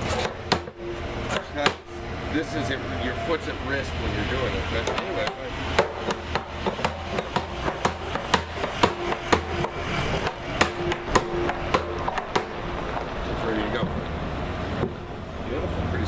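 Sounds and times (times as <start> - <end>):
hammer striking metal hoop: 0.0 - 2.1, 4.2 - 13.9.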